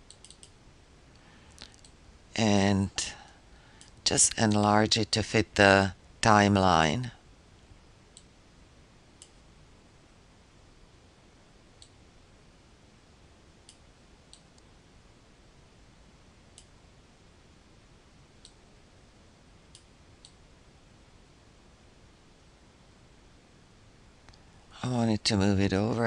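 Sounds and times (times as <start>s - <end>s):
low steady hiss: 0.0s - 26.0s
computer mouse clicking: 0.1s - 0.6s.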